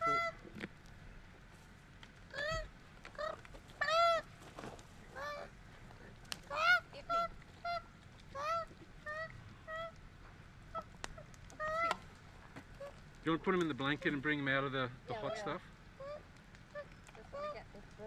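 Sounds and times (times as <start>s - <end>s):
koala wailing: 0.0s - 0.5s, 2.3s - 4.3s, 5.1s - 5.6s, 6.4s - 10.0s, 10.7s - 13.1s, 15.1s - 18.0s.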